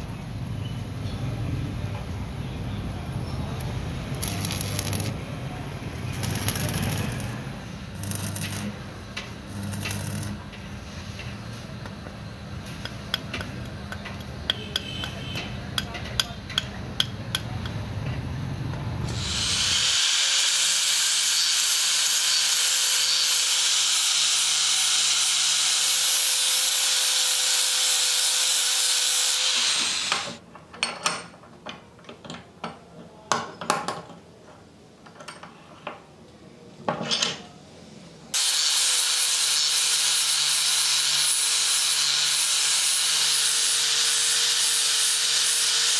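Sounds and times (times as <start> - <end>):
angle grinder grinding steel: 4.2 - 5.2, 6.1 - 7.4, 8.0 - 8.8, 9.5 - 10.4, 19.1 - 30.4, 38.4 - 45.9.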